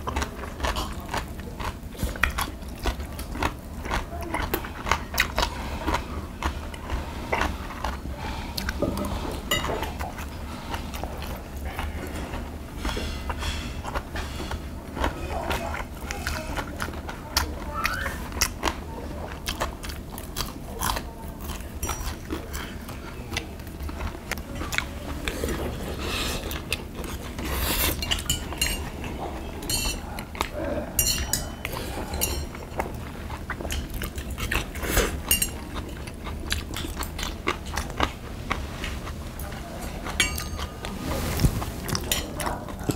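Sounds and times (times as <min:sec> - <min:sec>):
people chewing: 0:00.0 - 0:42.9
utensils clinking on metal dishes: 0:09.4 - 0:10.0, 0:21.8 - 0:22.7, 0:27.0 - 0:33.0, 0:33.6 - 0:36.2, 0:39.4 - 0:41.0, 0:41.8 - 0:42.9.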